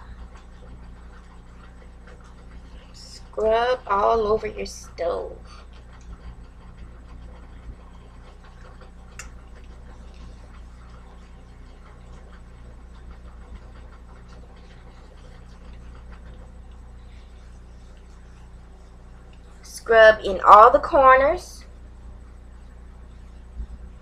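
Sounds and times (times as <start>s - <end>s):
steady low hum: 0.0s - 24.0s
wet cloth scrubbing stovetop: 0.0s - 24.0s.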